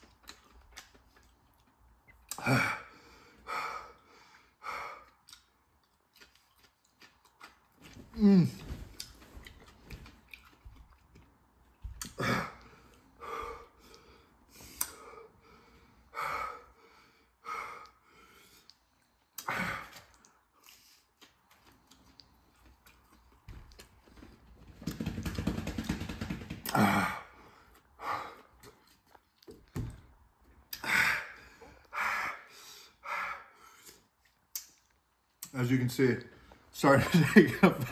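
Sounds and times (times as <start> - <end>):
person gasping and breathing hard: 2.3 - 5.1, 12.0 - 18.7, 26.6 - 28.8, 30.7 - 34.0.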